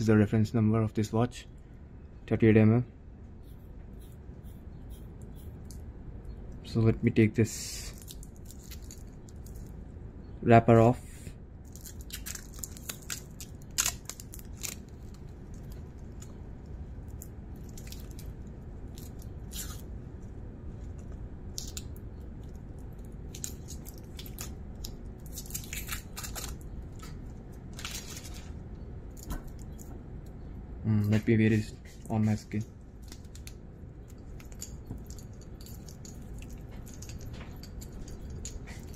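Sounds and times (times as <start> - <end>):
plastic film crackling and rustling: 7.9 - 9.7, 11.6 - 16.4, 20.9 - 29.8, 33.0 - 38.9.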